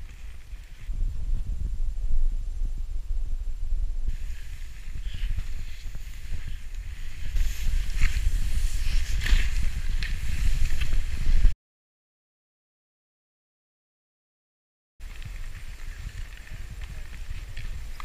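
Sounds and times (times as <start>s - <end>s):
skis sliding through snow: 0.0s - 0.9s, 4.1s - 11.5s, 15.0s - 18.0s
wind rumbling on microphone: 0.0s - 11.6s, 15.0s - 18.0s
sharp ski scrapes: 4.1s - 11.4s.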